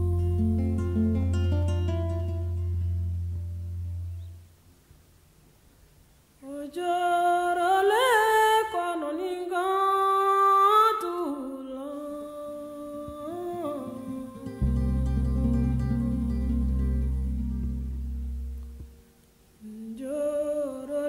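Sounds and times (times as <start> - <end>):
wordless vocal holding long notes: 0.0 - 1.1, 11.6 - 18.9
low musical accompaniment: 0.0 - 4.4, 14.6 - 19.1.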